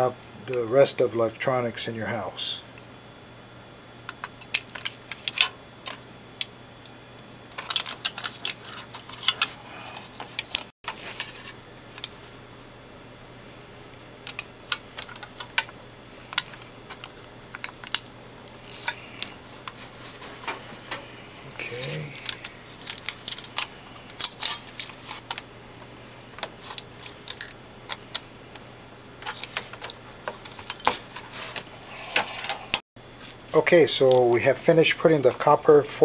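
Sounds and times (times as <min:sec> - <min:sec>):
foil tape clicks and crackles: 0:07.5 - 0:09.5, 0:14.2 - 0:19.3, 0:21.8 - 0:25.5, 0:29.2 - 0:31.3.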